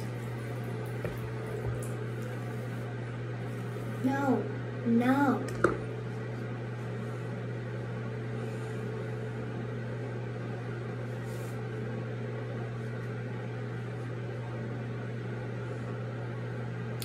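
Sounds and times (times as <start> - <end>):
low hum with hiss: 0.0 - 17.0.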